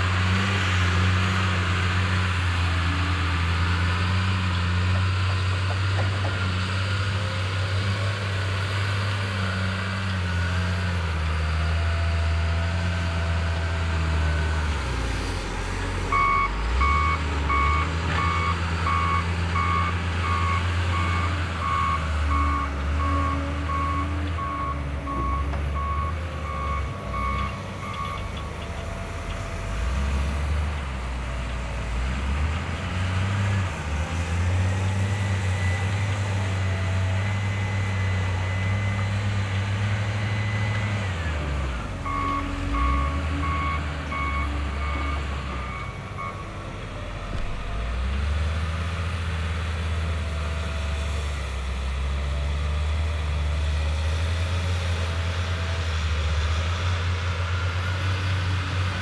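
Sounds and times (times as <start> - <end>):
diesel engine under load: 0.0 - 59.0
reversing alarm beeping: 16.1 - 30.3, 42.0 - 46.6.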